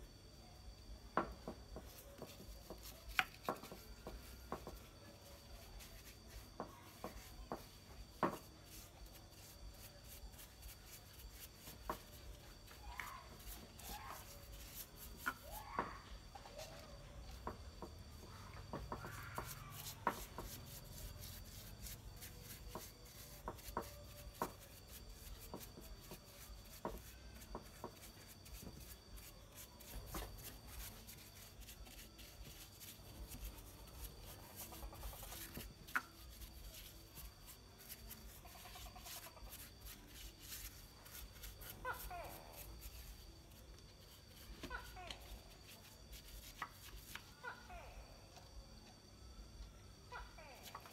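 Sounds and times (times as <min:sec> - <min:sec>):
small brush clicks and taps: 0:01.2 - 0:15.8, 0:18.7 - 0:41.7
soft rubbing: 0:01.2 - 0:47.5.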